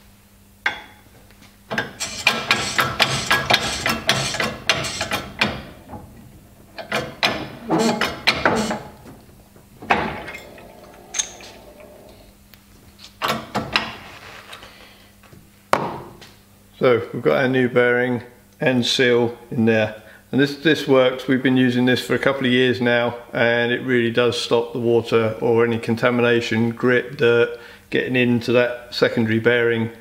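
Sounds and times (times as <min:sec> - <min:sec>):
hydraulic press clicks and clunks: 0:01.7 - 0:12.2, 0:13.1 - 0:14.0.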